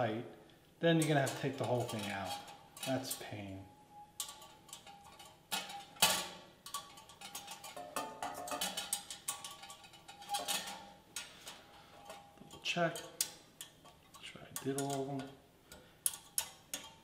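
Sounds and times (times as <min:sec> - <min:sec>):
wire rack clinking: 0:01.0 - 0:15.4.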